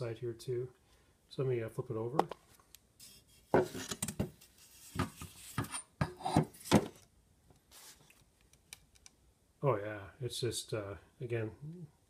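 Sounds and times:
handling rubs and knocks: 2.2 - 7.0.

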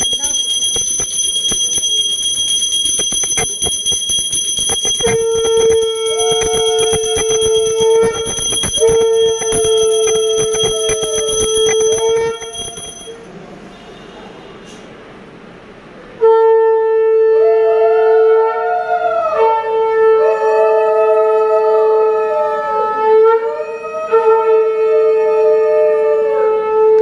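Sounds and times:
hand bell ringing rapidly: 0.0 - 13.2
conch shell blasts: 2.7 - 13.0.

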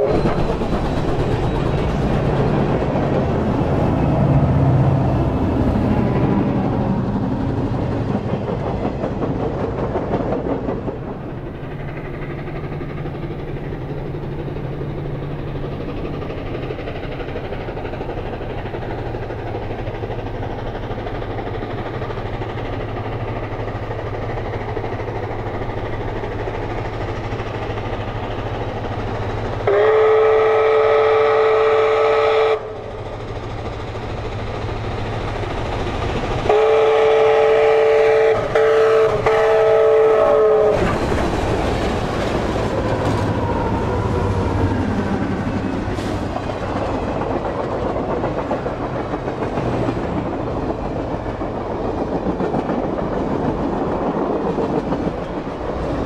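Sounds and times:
low rumble of train: 0.0 - 56.0
steam whistle blowing chord: 29.7 - 32.7.

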